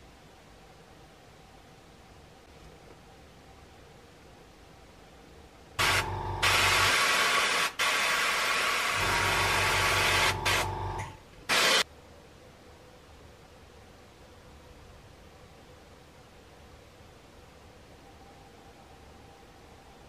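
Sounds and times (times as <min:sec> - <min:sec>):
low hum: 0:04.7 - 0:06.9
airbrush spraying hiss: 0:05.8 - 0:11.8.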